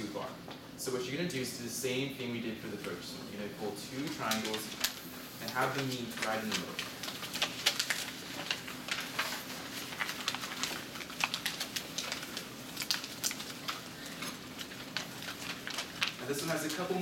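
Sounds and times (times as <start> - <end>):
paper being folded and creased: 3.9 - 17.0.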